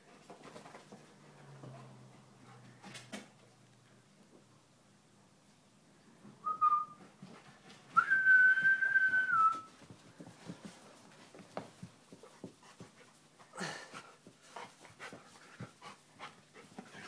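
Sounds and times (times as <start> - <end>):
person whistling: 6.4 - 7.0, 8.0 - 9.7
dog paws scuffling: 7.2 - 17.0.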